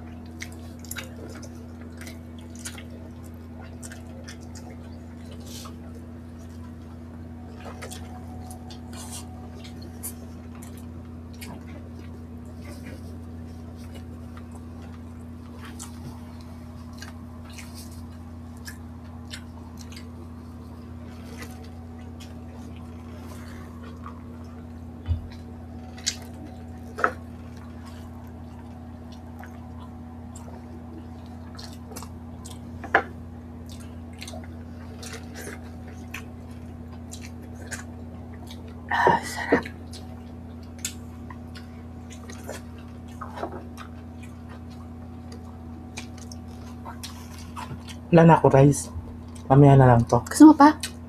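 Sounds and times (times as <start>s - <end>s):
chewing: 0.0s - 48.1s, 48.8s - 51.0s
steady low hum: 0.0s - 51.0s.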